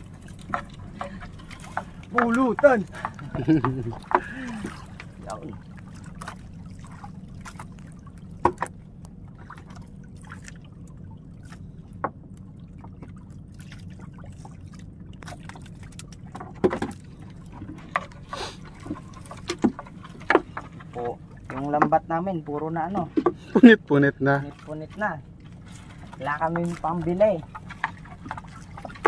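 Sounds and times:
water dripping and trickling: 0:00.0 - 0:23.0
steady low hum: 0:00.0 - 0:29.0.

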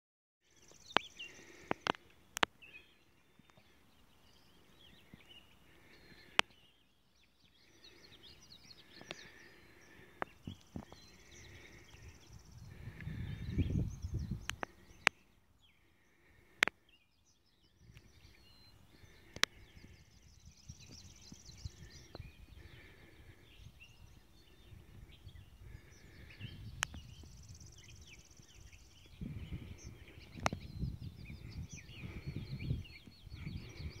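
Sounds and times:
birds chirping and trilling: 0:00.5 - 0:34.0
wind gusts on microphone: 0:12.0 - 0:14.9, 0:19.6 - 0:34.0
sharp clicks: 0:14.4 - 0:15.2.

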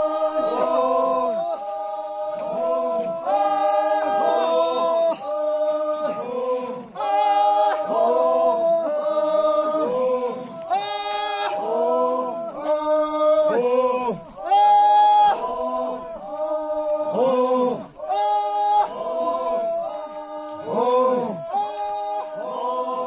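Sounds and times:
group singing a cappella: 0:00.0 - 0:23.0.

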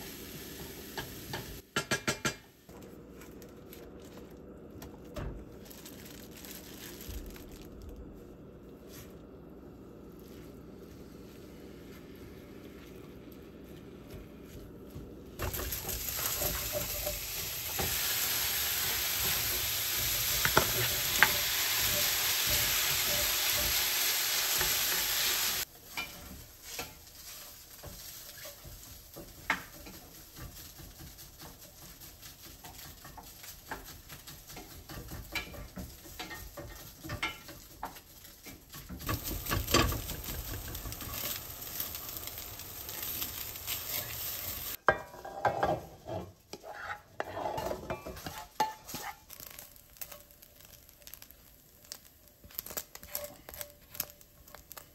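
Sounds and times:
meat sizzling in a skillet: 0:00.0 - 0:01.6, 0:15.4 - 0:45.9, 0:47.5 - 0:54.9
spoon scraping a pan: 0:15.4 - 0:50.8, 0:52.6 - 0:54.8.

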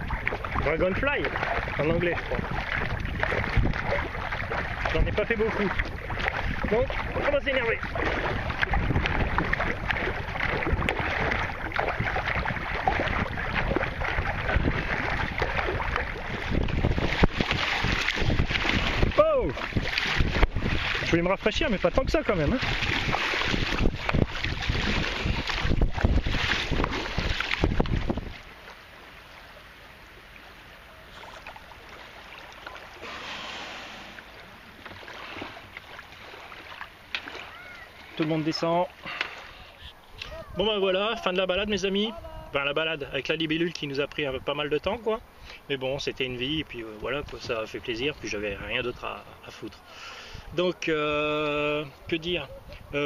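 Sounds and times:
wind noise on microphone: 0:00.0 - 0:28.6, 0:40.1 - 0:43.3
paddle blades splashing in water: 0:00.0 - 0:42.0.

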